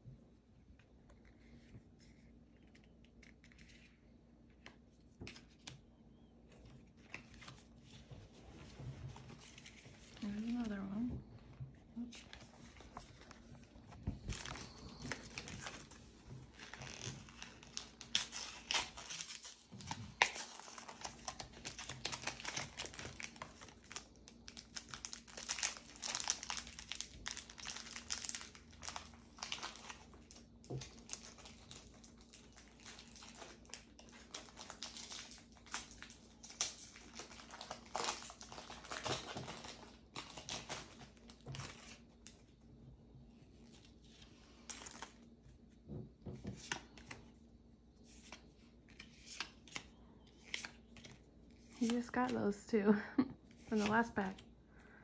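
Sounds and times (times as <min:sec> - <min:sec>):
foil pack crinkling and tearing: 0:14.2 - 0:42.4.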